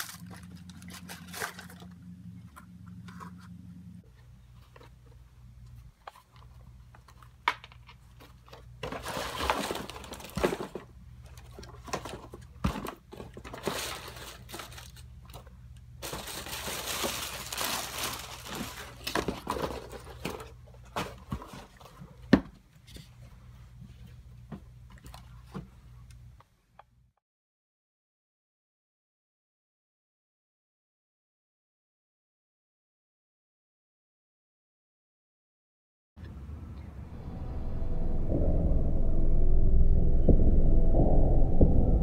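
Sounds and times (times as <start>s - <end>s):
paper and box rustling: 0.0s - 1.9s, 6.1s - 22.3s
steady low hum: 0.0s - 7.5s, 36.2s - 42.0s.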